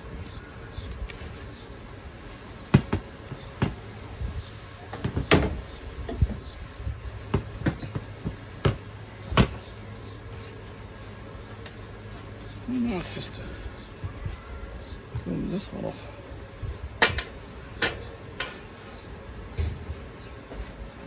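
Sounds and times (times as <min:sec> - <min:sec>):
tools clattering in metal shed: 0:17.0 - 0:18.7.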